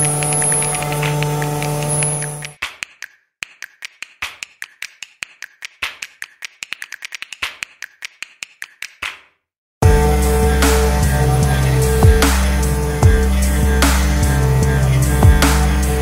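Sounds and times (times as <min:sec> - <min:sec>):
loud steady sound: 0:00.0 - 0:02.6, 0:09.8 - 0:16.0
steady hum: 0:00.0 - 0:02.6, 0:09.8 - 0:16.0
rapid sharp clicks: 0:00.0 - 0:09.2.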